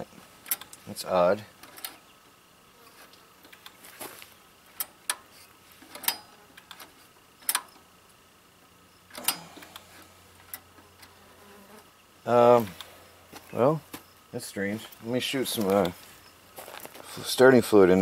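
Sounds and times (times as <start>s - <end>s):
insect buzzing: 1.6s - 14.4s.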